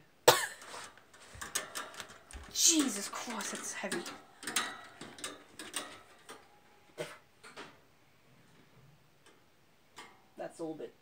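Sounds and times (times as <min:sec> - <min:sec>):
wire birdcage clicking: 0:00.6 - 0:06.6.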